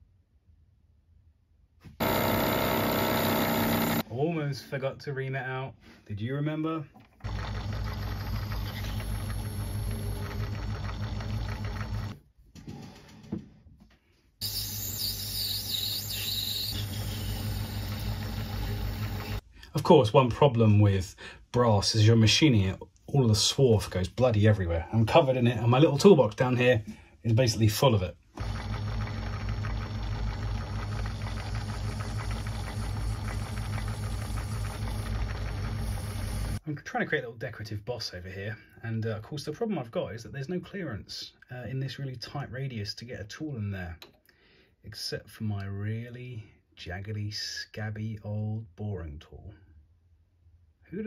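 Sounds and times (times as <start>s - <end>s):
metal lathe humming: 2.0s - 4.0s, 15.0s - 19.4s
lathe tool squealing: 14.4s - 19.4s.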